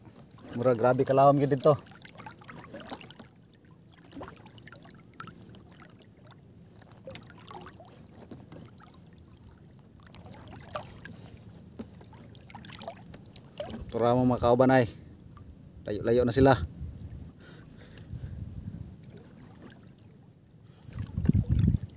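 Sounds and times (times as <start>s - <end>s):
seawater lapping and splashing: 0.0s - 15.6s, 16.6s - 21.9s
small splashes: 0.1s - 14.1s, 19.0s - 20.2s.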